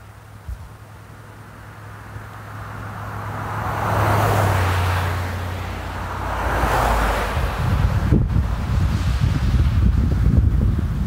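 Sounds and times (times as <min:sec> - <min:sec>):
vehicles passing: 0:00.0 - 0:11.0.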